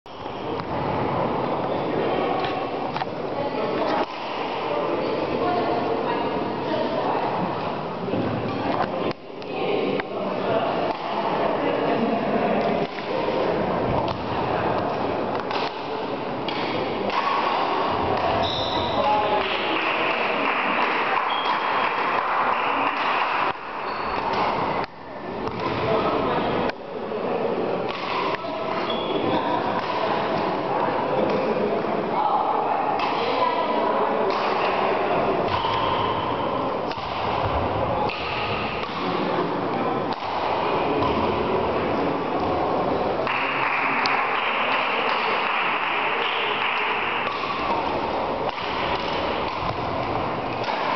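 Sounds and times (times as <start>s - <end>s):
echoing murmur of voices: 0.1s - 50.9s
shoes squeaking on court floor: 1.5s - 2.6s, 18.3s - 19.1s, 23.8s - 24.8s, 28.7s - 29.4s
rackets striking shuttlecock: 2.4s - 3.2s, 3.8s - 4.4s, 10.8s - 11.2s, 12.6s - 25.9s, 27.9s - 30.6s, 33.0s - 33.6s, 34.3s - 41.5s, 43.2s - 50.9s.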